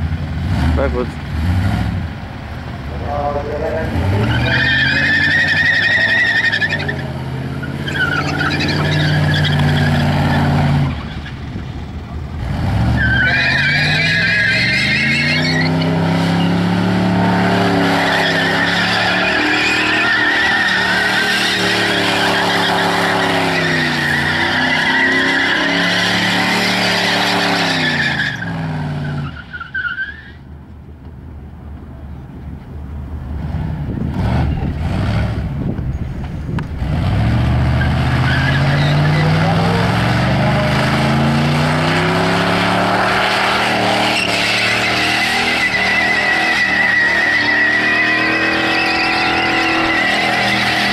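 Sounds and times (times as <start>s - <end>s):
car engine revving: 0.0s - 29.4s, 36.6s - 50.9s
tyres squealing: 3.6s - 11.5s, 12.9s - 30.4s, 37.8s - 50.9s.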